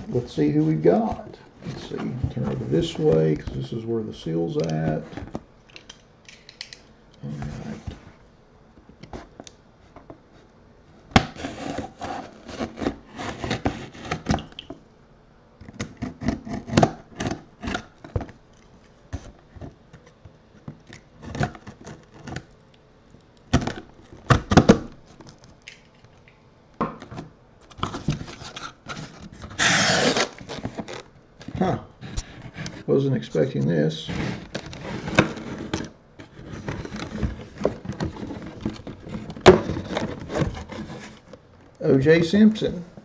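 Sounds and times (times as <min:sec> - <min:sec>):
cardboard box flaps scraping: 0:11.3 - 0:14.3.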